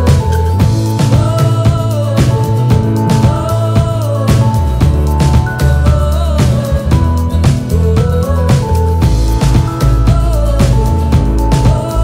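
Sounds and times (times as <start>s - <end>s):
background music with drum beat: 0.0s - 12.0s.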